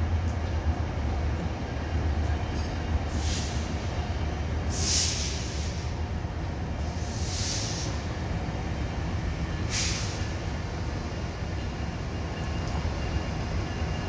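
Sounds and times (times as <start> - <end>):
diesel locomotive engine rumble: 0.0 - 14.0
short hisses: 4.7 - 5.8, 7.1 - 8.0.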